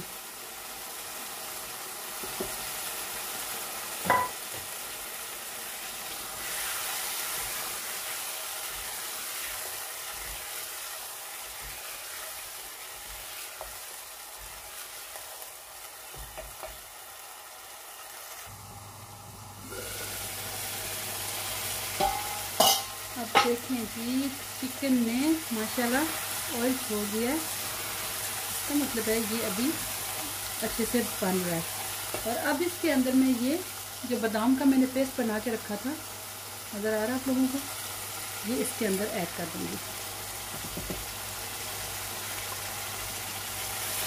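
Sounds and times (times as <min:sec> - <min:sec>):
food sizzling in a pan: 0:00.0 - 0:44.0
spatula knocking on pan: 0:04.0 - 0:04.6, 0:22.0 - 0:23.6, 0:40.5 - 0:41.1.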